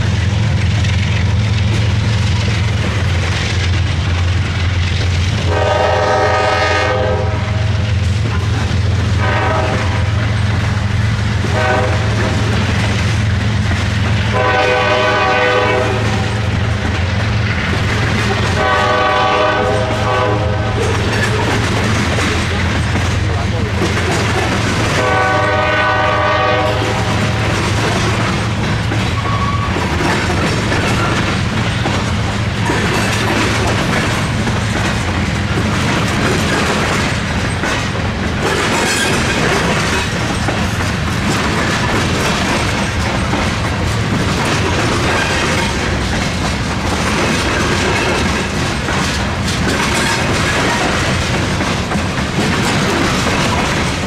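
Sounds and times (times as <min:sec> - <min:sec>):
train rumbling past: 0:00.0 - 0:54.0
locomotive air horn: 0:05.5 - 0:07.8, 0:09.2 - 0:10.2, 0:11.4 - 0:12.4, 0:14.3 - 0:16.5, 0:18.6 - 0:21.1, 0:24.9 - 0:27.5, 0:29.2 - 0:29.8
wheels clattering over crossing: 0:26.8 - 0:54.0.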